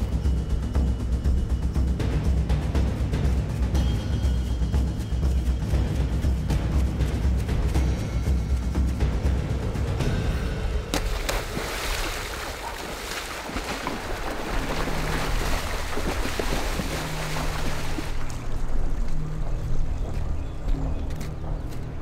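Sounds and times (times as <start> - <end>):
water splash: 10.9 - 18.6
water churning and sloshing: 10.9 - 20.6.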